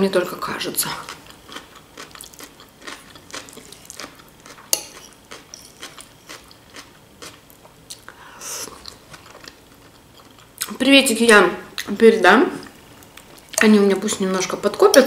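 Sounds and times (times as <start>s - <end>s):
quiet chewing: 1.0s - 10.8s.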